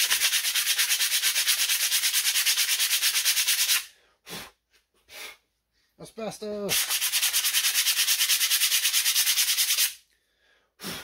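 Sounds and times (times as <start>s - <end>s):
sandpaper rubbing brake pad: 0.0s - 3.9s, 6.7s - 10.0s.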